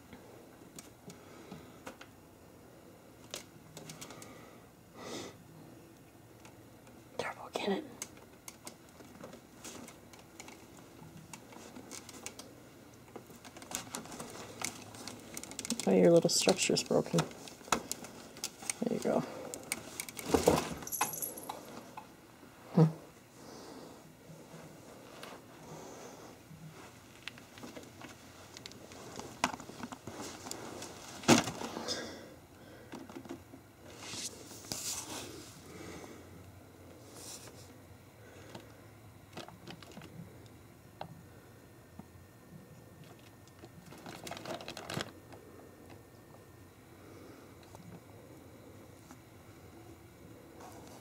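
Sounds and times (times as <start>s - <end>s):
small clicks and rustles: 8.0s - 22.1s, 26.7s - 31.7s, 38.4s - 41.1s, 43.0s - 46.0s.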